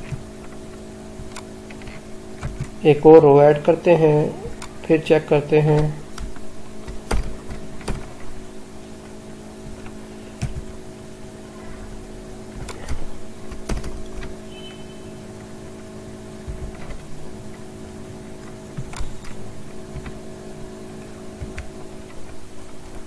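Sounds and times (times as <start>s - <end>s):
steady low hum: 0.0s - 23.0s
keyboard and mouse clicks: 12.5s - 14.3s, 18.4s - 20.2s.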